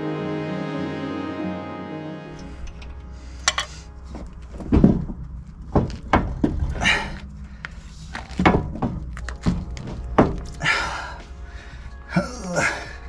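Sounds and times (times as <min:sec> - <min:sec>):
metal scrape: 0:02.3 - 0:04.3
metallic knocks and clunks: 0:02.6 - 0:06.8, 0:08.3 - 0:10.5.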